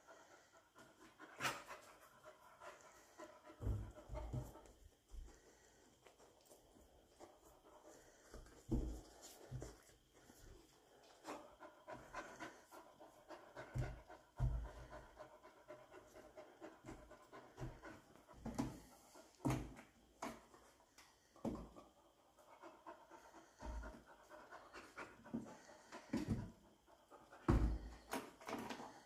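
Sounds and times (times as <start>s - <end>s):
dog panting: 0.0s - 28.9s
paws thumping on cabinet: 3.5s - 4.8s, 13.6s - 15.2s.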